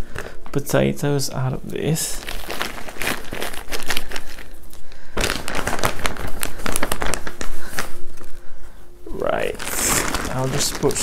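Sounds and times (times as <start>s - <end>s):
plastic bag crinkling: 1.8s - 8.4s, 9.1s - 11.0s.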